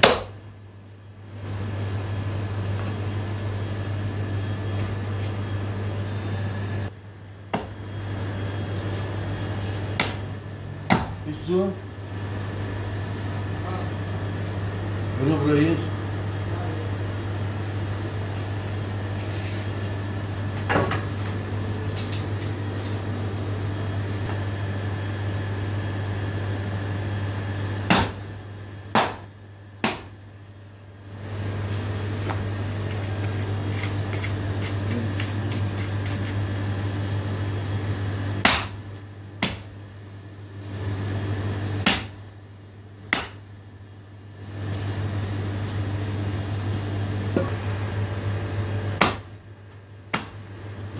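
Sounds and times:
axe chopping into wooden block: 0.0 - 0.3, 10.0 - 10.2, 27.9 - 28.2, 29.0 - 30.1, 38.4 - 38.8, 39.4 - 39.7, 41.8 - 42.2, 43.1 - 43.4, 49.0 - 49.3
steady low hum: 0.0 - 50.9.

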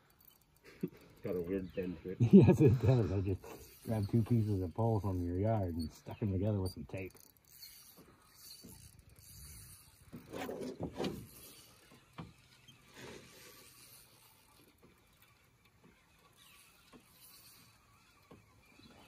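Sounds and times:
fishing reel clicking: 0.0 - 1.9, 2.6 - 19.0
handling rustles and knocks: 10.0 - 12.4.

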